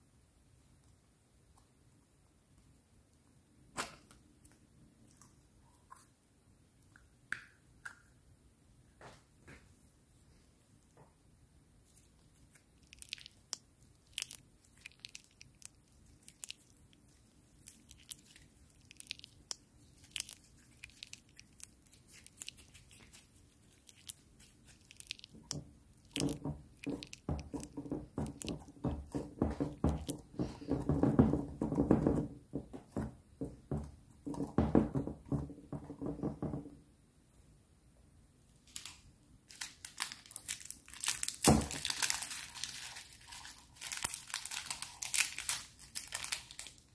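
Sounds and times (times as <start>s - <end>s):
slime squelching and popping: 11.9s - 33.0s, 40.0s - 46.9s
plastic packet crinkling: 12.0s - 30.3s, 38.7s - 46.9s.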